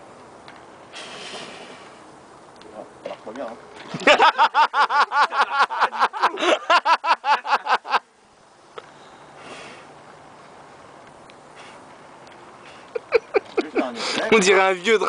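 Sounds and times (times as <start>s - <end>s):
person laughing: 4.0s - 8.0s, 12.9s - 14.1s.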